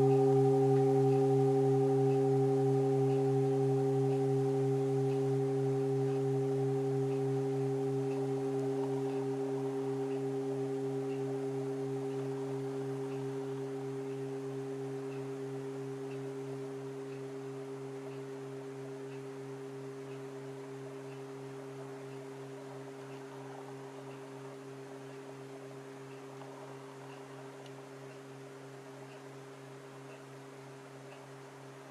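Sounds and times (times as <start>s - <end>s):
singing bowl ringing: 0.0s - 20.0s.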